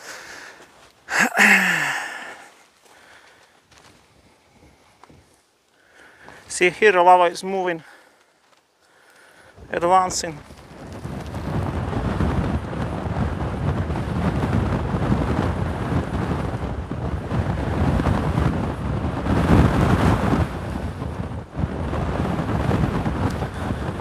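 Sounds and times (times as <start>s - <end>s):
strong wind buffeting microphone: 4.0s - 5.4s, 9.3s - 24.0s.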